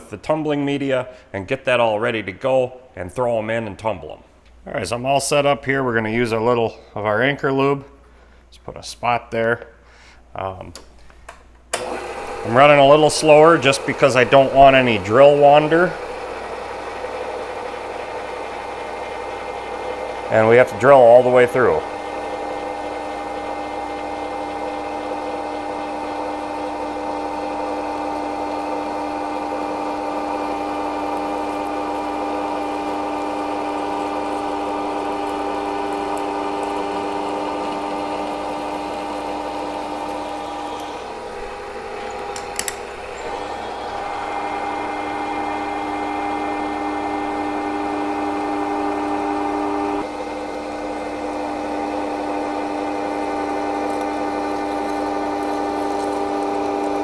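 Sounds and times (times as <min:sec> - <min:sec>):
milling machine drilling metal: 0:11.8 - 0:57.0
sharp clicks: 0:42.1 - 0:43.0.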